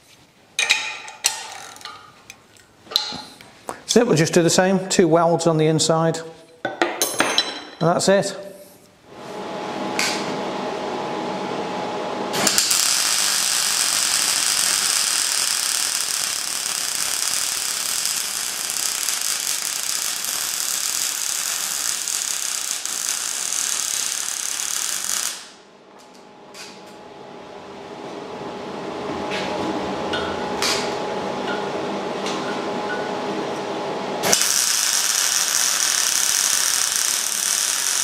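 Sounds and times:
welder arc crackling and hissing: 0:12.3 - 0:26.8, 0:34.2 - 0:38.0.

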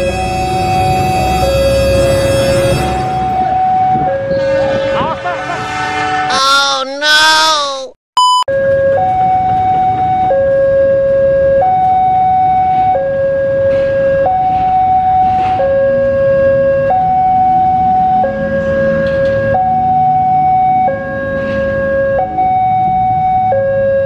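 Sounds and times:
two-tone crossing alarm: 0:00.0 - 0:06.3, 0:08.2 - 0:24.0
road traffic: 0:00.0 - 0:07.9, 0:08.5 - 0:24.0
motorcycle engines: 0:08.6 - 0:24.0.

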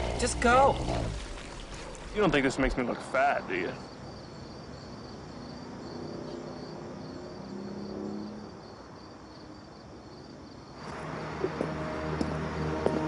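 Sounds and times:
crickets chirping: 0:00.0 - 0:13.0
music: 0:10.8 - 0:13.0.

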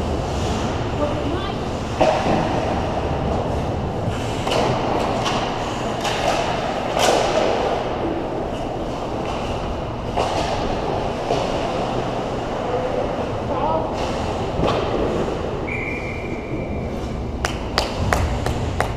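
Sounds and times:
sticks and puck clacking: 0:04.2 - 0:12.5.

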